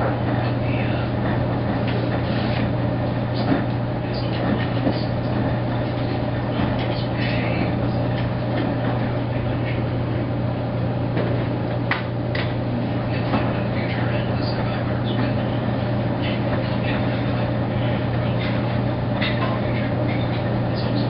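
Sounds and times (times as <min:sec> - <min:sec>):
washing machine humming: 0:00.0 - 0:21.0.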